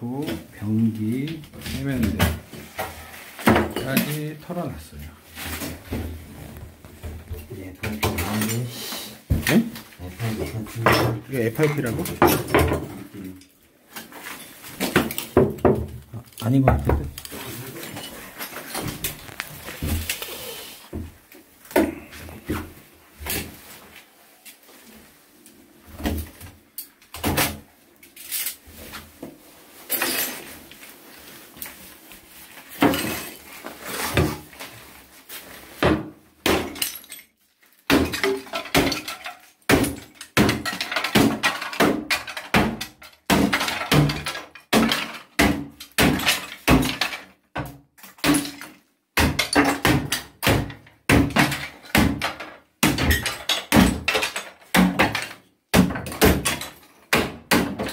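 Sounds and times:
hammer smashing ceramic tiles: 35.9 - 37.3, 37.9 - 57.9.

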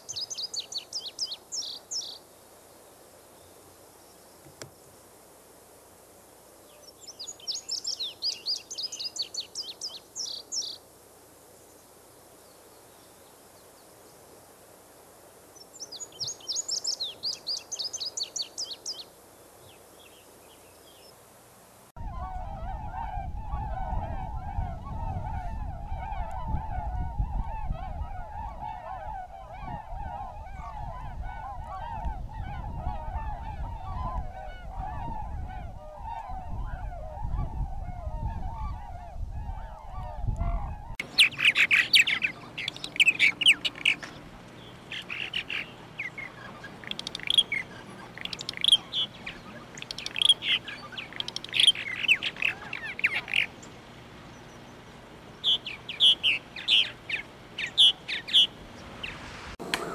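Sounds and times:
birds chirping: 0.0 - 5.0, 6.7 - 10.8, 15.4 - 21.2, 22.0 - 59.9
swans honking: 38.4 - 59.9
low rumble: 58.5 - 59.9.

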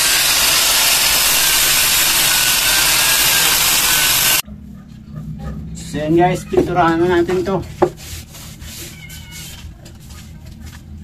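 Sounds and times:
angle grinder grinding wood: 0.0 - 4.4.

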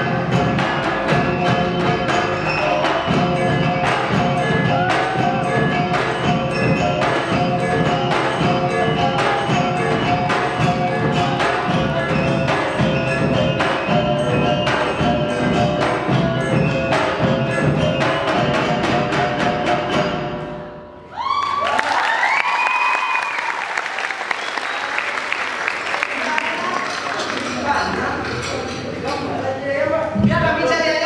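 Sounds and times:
steady drum beat: 0.0 - 20.2
mallet-struck melodic percussion: 0.0 - 21.1.

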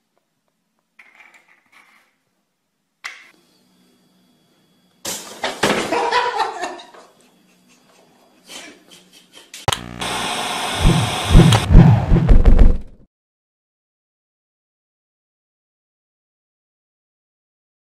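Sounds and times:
tv static hiss: 9.7 - 11.7
heavy low thumps: 10.8 - 13.0.

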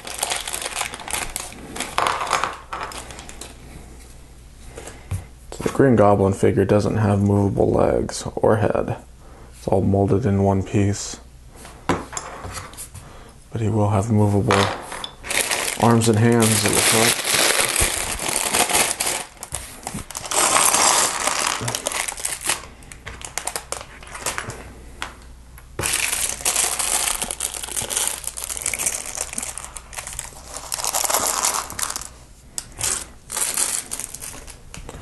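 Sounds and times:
plastic bags crinkling: 0.0 - 3.6, 15.2 - 24.7, 25.8 - 35.0.

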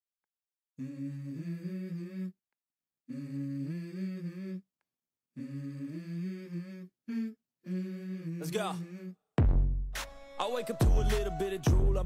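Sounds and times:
person humming a melody: 0.8 - 2.4, 3.1 - 4.7, 5.4 - 9.2.

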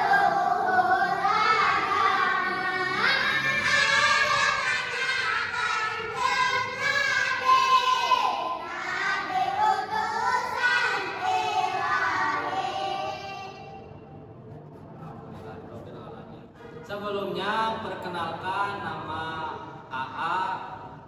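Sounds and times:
children singing in unison: 0.0 - 13.8.

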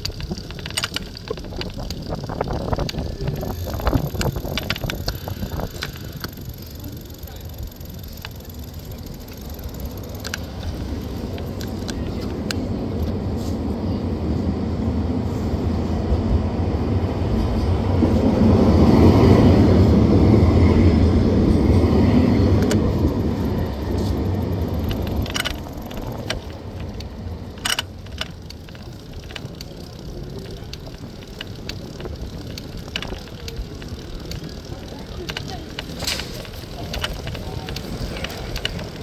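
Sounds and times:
bike clicks and rattles: 0.0 - 13.6, 21.5 - 39.0
low rumbling street noise: 0.0 - 39.0.

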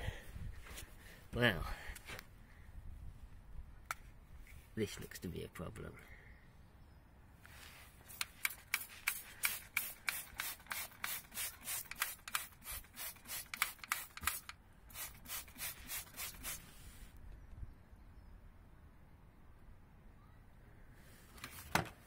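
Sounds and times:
spray bottle squirting: 8.1 - 16.6.

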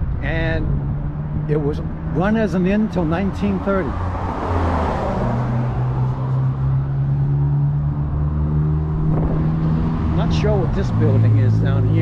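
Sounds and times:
steady engine hum: 0.0 - 12.0
car passing by: 3.9 - 11.4.

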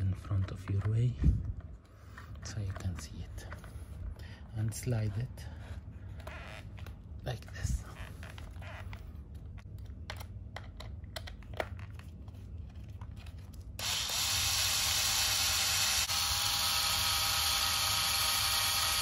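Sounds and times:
electric screwdriver whining: 13.8 - 19.0.

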